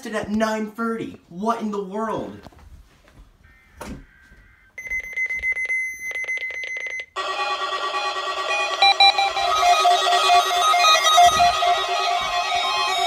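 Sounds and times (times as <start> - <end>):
fast electronic beeping: 4.8 - 13.0
steady high tone: 7.2 - 13.0.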